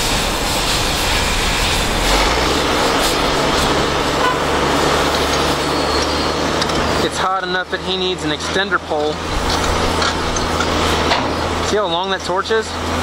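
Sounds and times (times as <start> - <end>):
loud even rushing noise: 0.0 - 7.9
heavy diesel equipment running: 0.0 - 13.0
low engine hum: 0.1 - 13.0.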